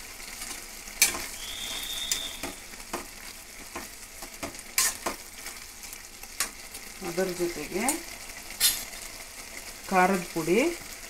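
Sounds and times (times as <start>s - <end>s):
vegetables sizzling in a pan: 0.0s - 11.0s
spatula scraping a pan: 1.0s - 5.6s, 8.5s - 8.9s
thin high tone: 1.4s - 2.6s.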